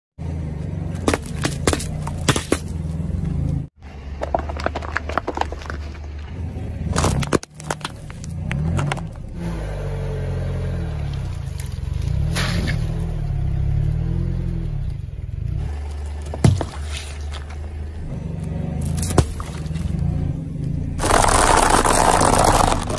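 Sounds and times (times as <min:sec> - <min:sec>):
car engine running: 0:00.2 - 0:12.8, 0:14.8 - 0:22.9
tyre crushing plastic: 0:01.0 - 0:02.7, 0:06.9 - 0:09.2, 0:21.0 - 0:22.9.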